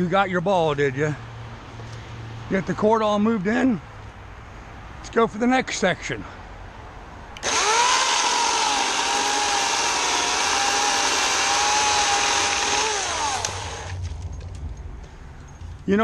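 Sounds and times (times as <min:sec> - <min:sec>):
electric chainsaw cutting: 0:07.4 - 0:14.0.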